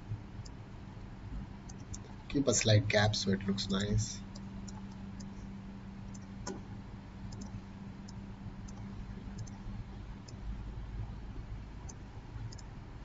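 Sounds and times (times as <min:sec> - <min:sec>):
steady low hum: 0:00.0 - 0:13.0
computer mouse clicks: 0:01.7 - 0:02.2, 0:07.3 - 0:09.6, 0:11.9 - 0:12.7.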